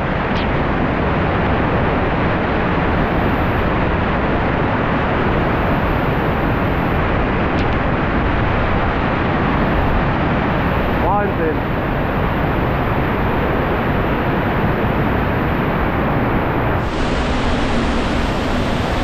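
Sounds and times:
waterfall rushing: 0:16.8 - 0:19.0.

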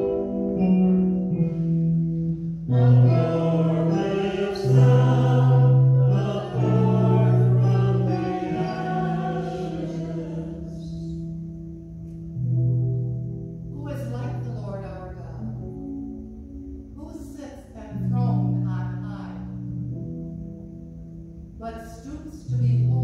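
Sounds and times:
instrumental accompaniment: 0:00.0 - 0:17.0
congregation singing: 0:02.7 - 0:11.3.

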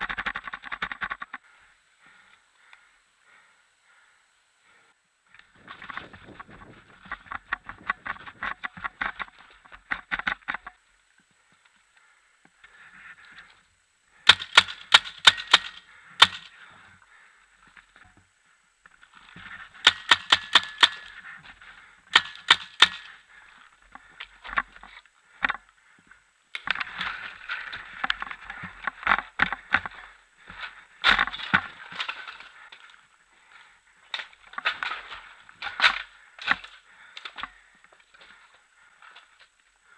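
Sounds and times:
paintball markers firing: 0:14.3 - 0:16.5, 0:19.8 - 0:21.1, 0:22.1 - 0:23.2.

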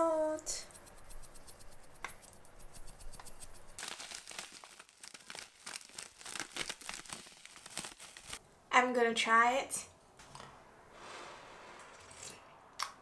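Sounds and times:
seasoning powder shaken into pot: 0:00.4 - 0:08.4.

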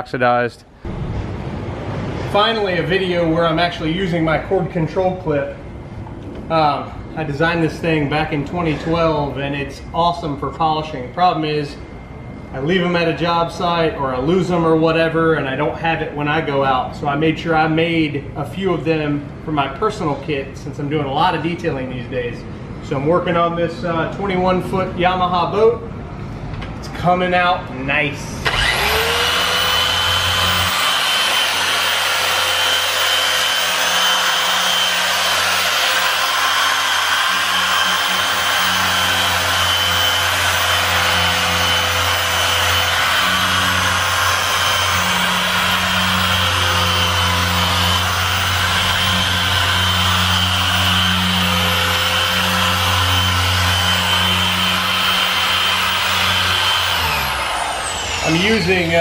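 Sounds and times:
polisher motor whine: 0:28.4 - 0:59.0.

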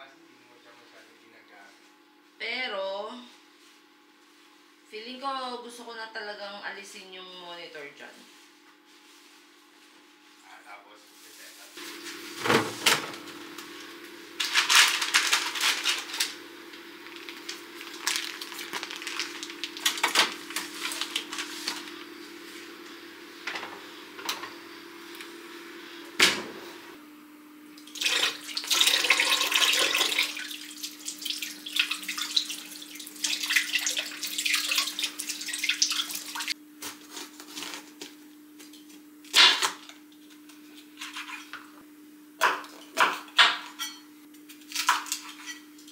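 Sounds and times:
tap water running into sink: 0:27.8 - 0:36.5.

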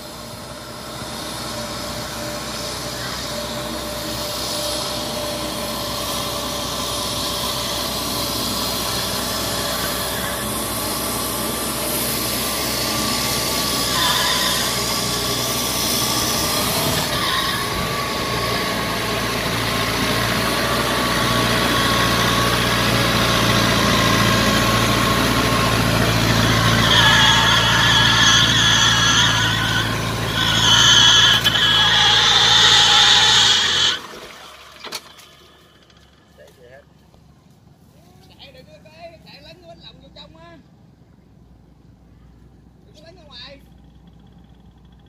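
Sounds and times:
high squealing: 0:02.2 - 0:36.3
tractor engine running: 0:14.6 - 0:37.9, 0:43.6 - 0:45.0.

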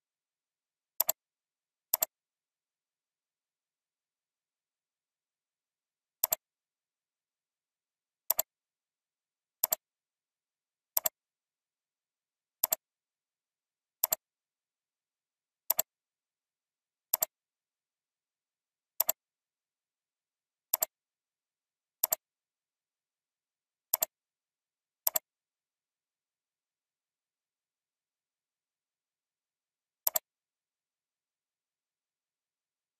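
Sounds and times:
computer mouse clicks: 0:01.0 - 0:01.2, 0:01.9 - 0:02.2, 0:06.2 - 0:06.4, 0:08.3 - 0:08.5, 0:09.6 - 0:09.8, 0:10.9 - 0:11.2, 0:12.6 - 0:12.8, 0:14.0 - 0:14.2, 0:15.7 - 0:15.9, 0:17.1 - 0:17.4, 0:19.0 - 0:19.2, 0:20.7 - 0:21.0, 0:22.0 - 0:22.3, 0:23.9 - 0:24.2, 0:25.0 - 0:25.3, 0:30.0 - 0:30.3.

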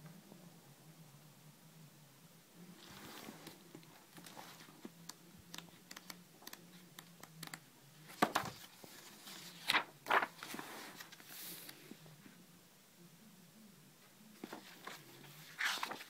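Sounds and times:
page flips: 0:02.8 - 0:11.8, 0:14.4 - 0:16.0
paper rustling and flicking: 0:02.8 - 0:11.8, 0:14.4 - 0:16.0.

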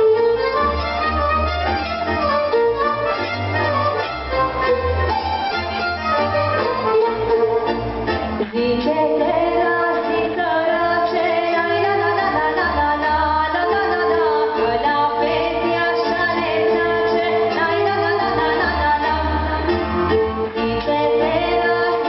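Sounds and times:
instrumental backing music: 0:00.0 - 0:22.0
woman singing into a microphone: 0:08.4 - 0:19.8, 0:20.5 - 0:22.0.

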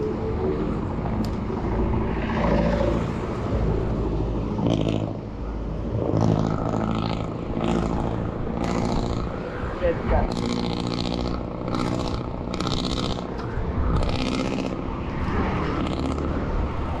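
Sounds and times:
vehicle engines running: 0:00.0 - 0:17.0
wind noise on microphone: 0:05.8 - 0:17.0.

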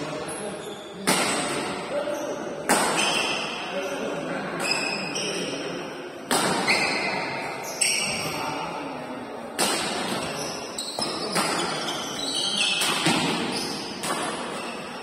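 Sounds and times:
shoes squeaking on court floor: 0:00.3 - 0:01.1, 0:02.1 - 0:05.7, 0:06.6 - 0:08.6, 0:09.9 - 0:15.0
rackets smacking shuttlecock: 0:06.3 - 0:07.0, 0:09.6 - 0:12.0, 0:12.6 - 0:14.6.

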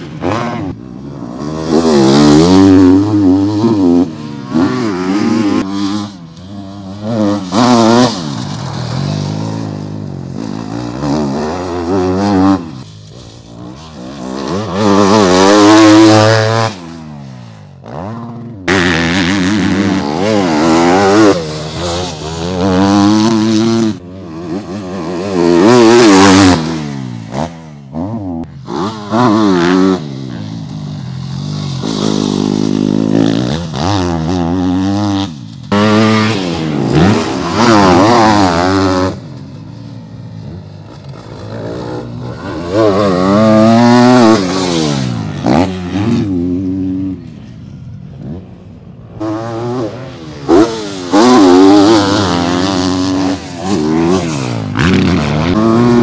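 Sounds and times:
motocross bikes revving past: 0:00.0 - 0:56.0.

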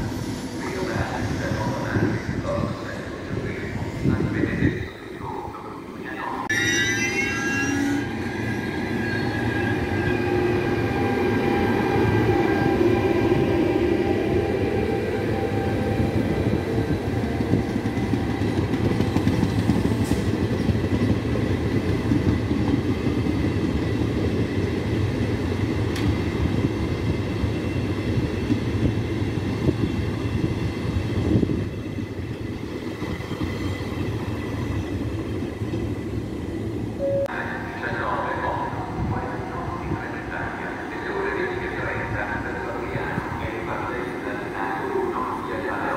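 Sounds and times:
train whine: 0:00.0 - 0:45.9
train wheels rumbling on rail: 0:08.0 - 0:37.0.

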